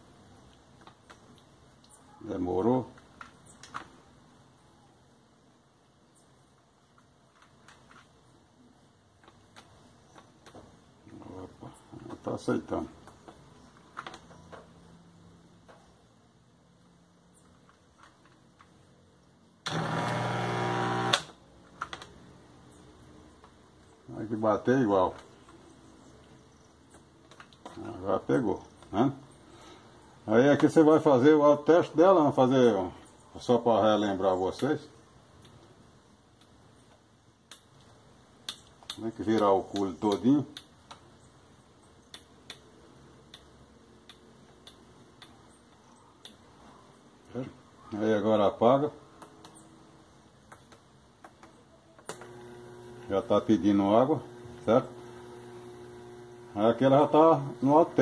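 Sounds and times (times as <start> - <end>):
loud electric buzz: 19.7 - 21.3, 52.1 - 58.0.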